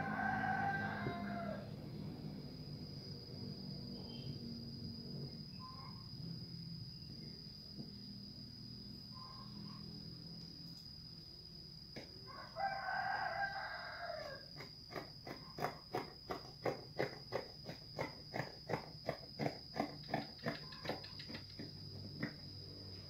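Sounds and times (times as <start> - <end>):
rooster crowing: 0.0 - 1.8, 12.2 - 14.6
high insect trill: 0.0 - 23.0.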